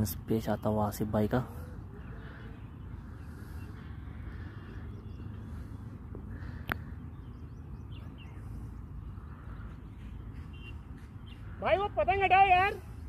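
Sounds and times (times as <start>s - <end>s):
low ambient rumble: 0.7s - 13.0s
faint bird chirps: 1.5s - 11.7s.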